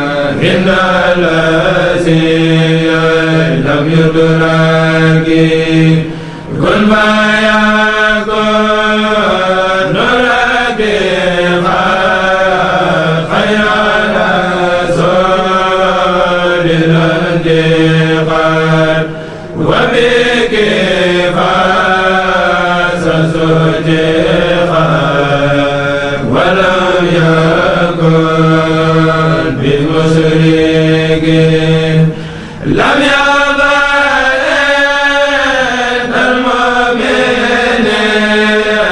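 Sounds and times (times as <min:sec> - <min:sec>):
men chanting in unison: 0:00.0 - 0:38.9.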